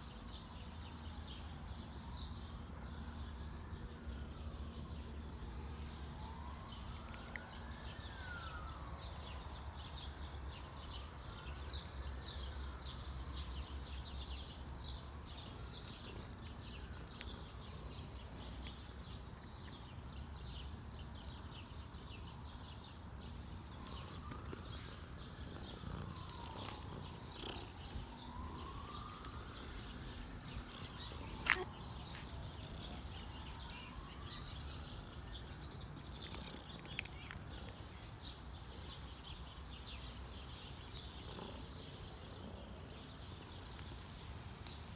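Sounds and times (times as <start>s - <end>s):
cat purring: 23.4s - 31.4s, 40.8s - 43.1s.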